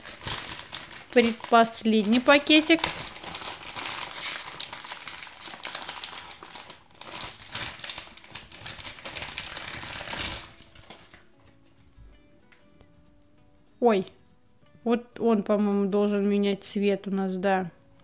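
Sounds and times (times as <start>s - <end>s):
foil packet crinkling and tearing: 0.0s - 11.4s.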